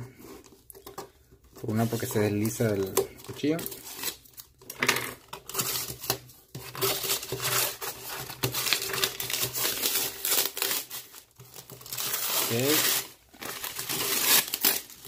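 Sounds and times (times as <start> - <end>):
tape tearing: 1.8 - 4.6, 5.3 - 15.0
cardboard box crinkling: 5.4 - 15.0
knife cutting packing tape: 5.4 - 15.0.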